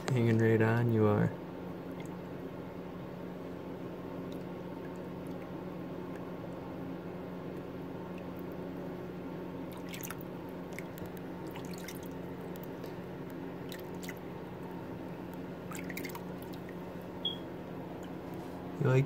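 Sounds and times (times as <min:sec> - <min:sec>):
steady hum: 0:00.0 - 0:19.0
water drips and splashes: 0:09.7 - 0:12.7, 0:15.7 - 0:16.8.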